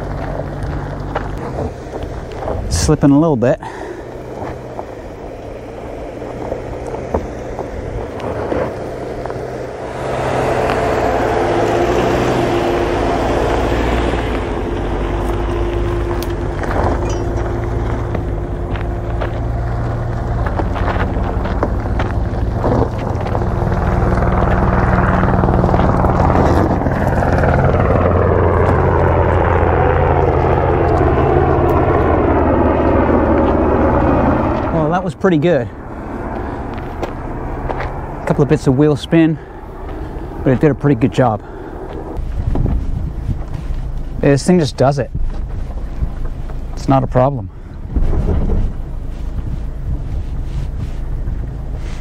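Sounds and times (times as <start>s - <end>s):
car engine under load: 0.0s - 52.0s
wind on microphone: 41.8s - 44.2s, 45.0s - 46.7s, 47.6s - 52.0s.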